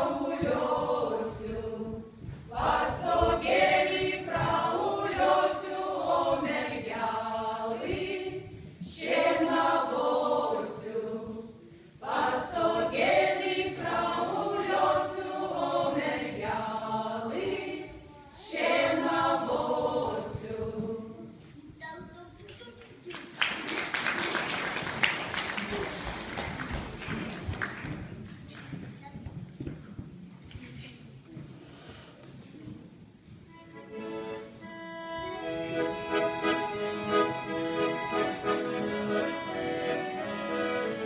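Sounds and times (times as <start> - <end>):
women singing unaccompanied in unison: 0.0 - 21.3.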